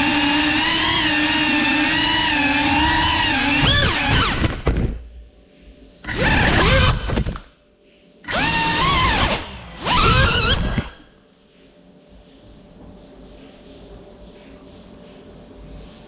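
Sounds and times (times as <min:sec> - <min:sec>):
drone motors whining: 0:00.0 - 0:04.7, 0:06.0 - 0:07.4, 0:08.2 - 0:11.1.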